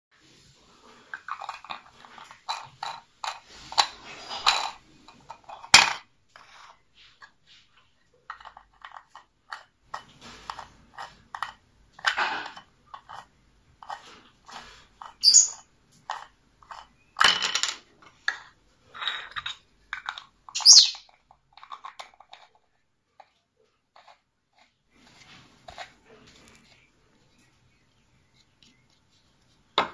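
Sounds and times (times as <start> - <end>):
plastic parts clicking and scraping: 0.9 - 27.5
plastic squeaks: 13.8 - 15.7, 20.5 - 22.8.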